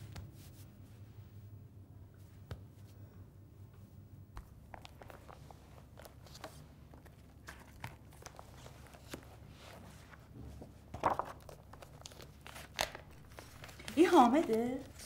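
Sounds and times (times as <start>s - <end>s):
plastic sleeves rustling: 4.7s - 15.0s.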